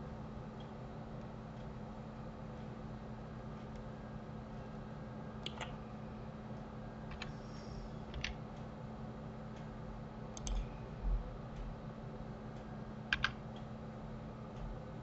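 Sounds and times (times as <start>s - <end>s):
mouse and keyboard clicks: 13.1s - 13.4s.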